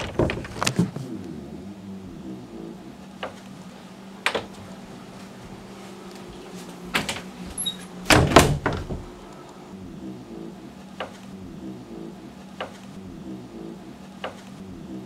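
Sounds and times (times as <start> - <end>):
wooden door clicks and knocks: 0.0 - 0.8, 4.2 - 4.6, 6.9 - 7.3, 8.0 - 9.2
low hum: 0.0 - 15.0.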